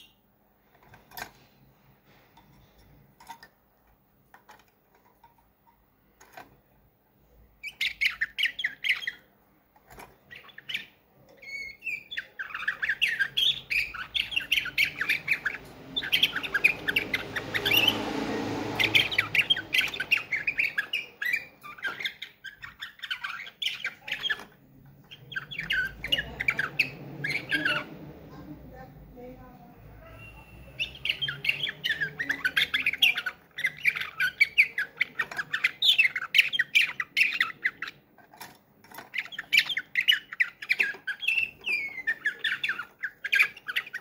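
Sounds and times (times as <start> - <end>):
canary singing trills: 0.0 - 3.6, 4.2 - 44.0.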